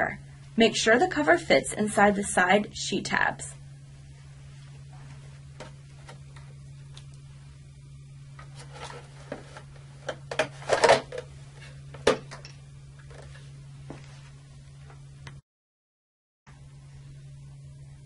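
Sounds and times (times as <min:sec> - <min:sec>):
knocks and clicks of plastic cover: 0:11.9 - 0:12.5.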